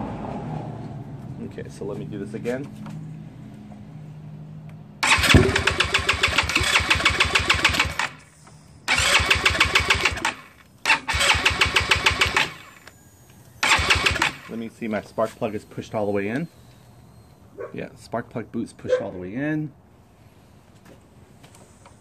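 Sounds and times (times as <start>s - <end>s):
scooter engine cranking on starter: 5.0s - 8.3s, 8.9s - 12.9s, 13.6s - 14.6s.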